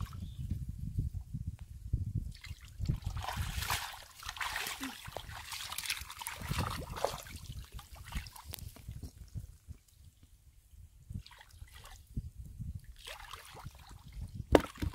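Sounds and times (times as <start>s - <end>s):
muddy water splashing: 2.3s - 8.9s, 13.0s - 14.9s.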